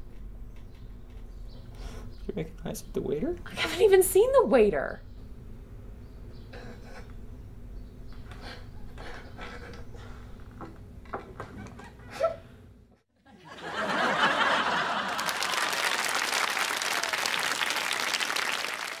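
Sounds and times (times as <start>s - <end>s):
audience applause: 13.6s - 19.0s.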